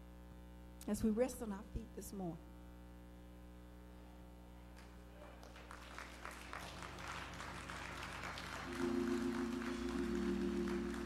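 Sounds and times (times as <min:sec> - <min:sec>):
congregation clapping: 0:04.8 - 0:11.0
soft sustained instrumental chords: 0:07.0 - 0:11.0.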